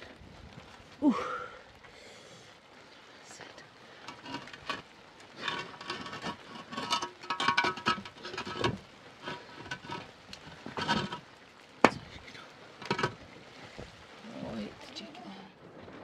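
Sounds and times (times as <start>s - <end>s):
concrete blocks scraping: 4.0s - 12.1s, 12.7s - 13.9s.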